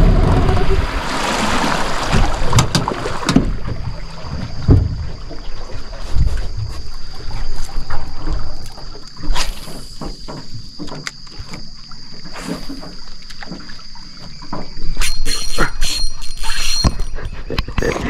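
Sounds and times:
high-pitched whine: 0:00.0 - 0:01.1.

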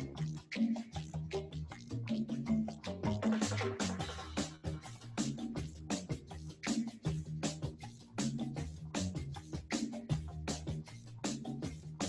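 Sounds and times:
bass line: 0:00.0 - 0:12.0
drum beat: 0:03.0 - 0:12.0.

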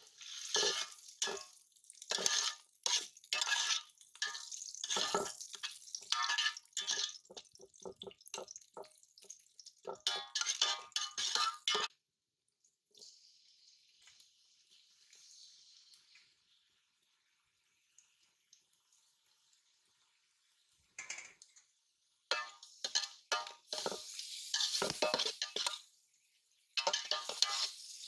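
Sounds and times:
metal spatula scraping pot: 0:00.0 - 0:08.5, 0:09.9 - 0:11.9, 0:22.3 - 0:25.9, 0:26.8 - 0:28.0
food sizzling in oil: 0:00.0 - 0:11.9, 0:13.0 - 0:28.0.

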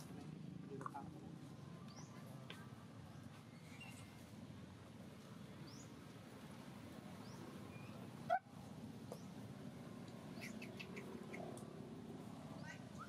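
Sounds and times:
bird chirps: 0:10.3 - 0:11.5.

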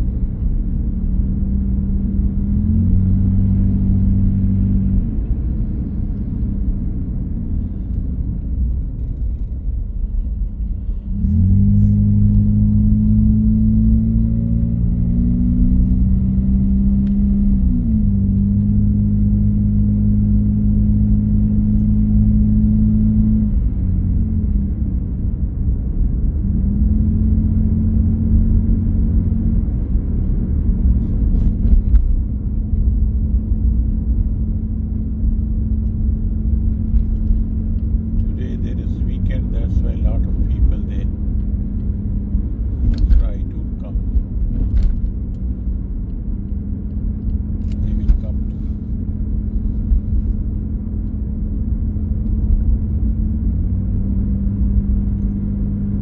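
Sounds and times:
car engine drone: 0:00.0 - 0:56.0
road noise inside car: 0:00.0 - 0:56.0.

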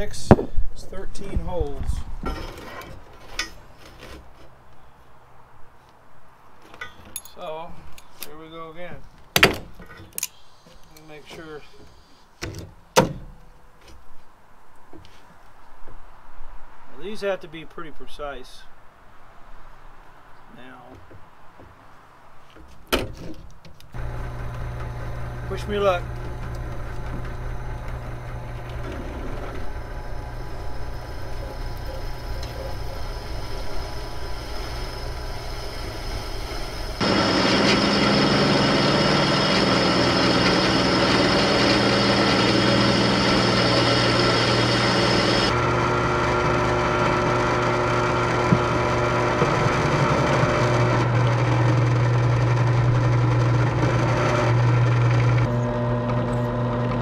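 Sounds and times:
drill bit drilling steel: 0:24.0 - 0:57.0
drill press motor hum: 0:24.0 - 0:57.0.

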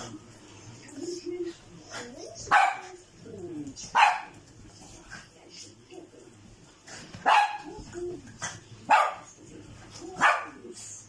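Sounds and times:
puppy barking: 0:02.5 - 0:03.0, 0:03.9 - 0:04.4, 0:07.2 - 0:07.7, 0:08.9 - 0:09.3, 0:10.2 - 0:10.6.

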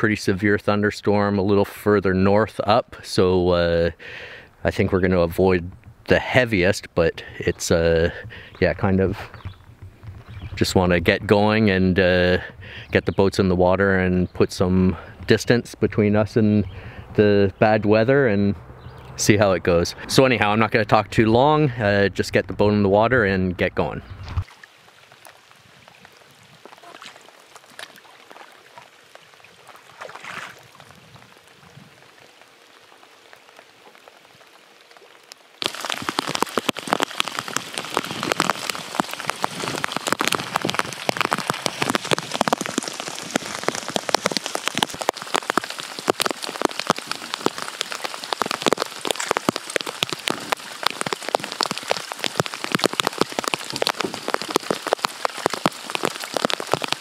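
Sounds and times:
heavy rain on water: 0:24.4 - 0:57.0.

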